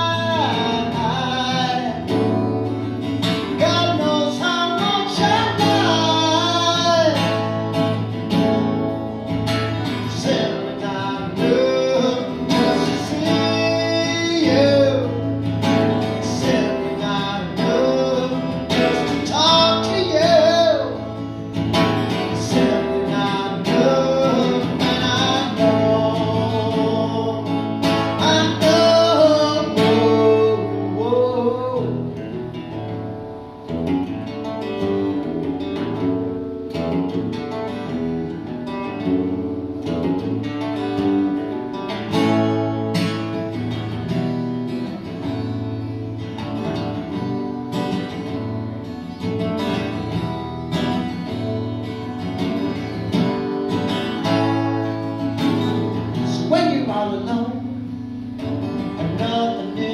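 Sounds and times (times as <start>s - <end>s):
man singing: 0.0s - 8.5s, 9.2s - 32.4s, 54.1s - 59.9s
acoustic guitar strumming: 0.0s - 59.9s.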